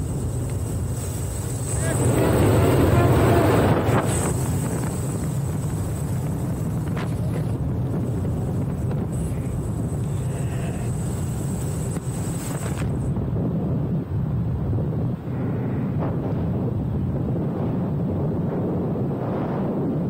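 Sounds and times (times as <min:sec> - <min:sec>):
high-pitched whine: 0:00.0 - 0:13.2
aircraft engine drone: 0:00.0 - 0:20.0
rushing air: 0:00.0 - 0:20.0.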